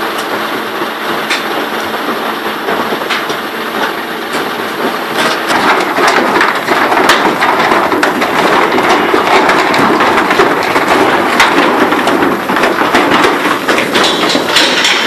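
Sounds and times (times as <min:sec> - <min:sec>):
cattle hooves on metal ramp: 0:00.9 - 0:15.0.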